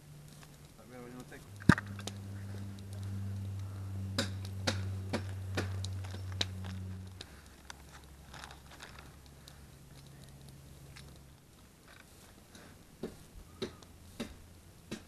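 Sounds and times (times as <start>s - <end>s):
low steady hum: 0.0s - 15.0s
plastic wrapping handling: 5.8s - 12.5s.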